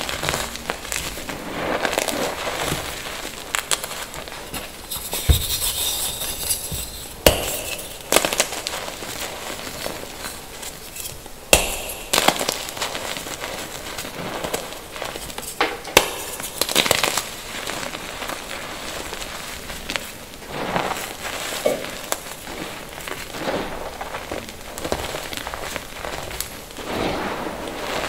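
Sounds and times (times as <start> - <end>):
chalk crunching and crumbling: 0.0 - 28.0
chalk blocks cracking: 3.6 - 17.4.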